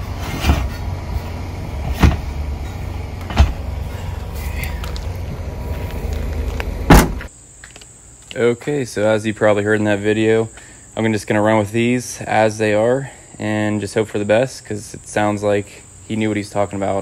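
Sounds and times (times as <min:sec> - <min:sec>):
steady low rumble: 0:00.0 - 0:07.3
liftgate slammed shut: 0:01.8 - 0:03.7, 0:06.8 - 0:07.3.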